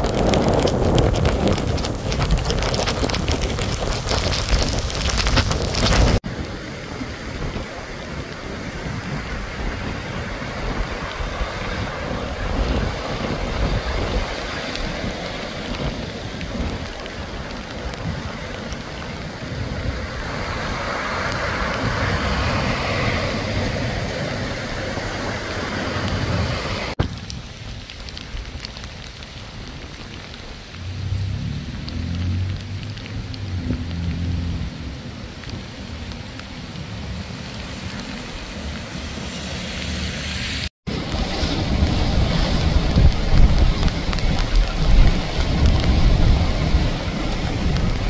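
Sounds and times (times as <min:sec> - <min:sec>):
breaking surf: 0:00.0 - 0:18.9, 0:19.5 - 0:27.1, 0:39.2 - 0:48.0
wind buffeting microphone: 0:00.0 - 0:35.8, 0:40.9 - 0:48.0
steady rain: 0:00.0 - 0:48.0
tyres splashing through water: 0:00.0 - 0:48.0.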